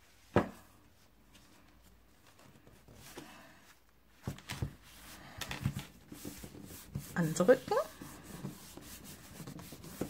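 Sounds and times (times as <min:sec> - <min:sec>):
faint paper rustling: 0:00.0 - 0:10.0.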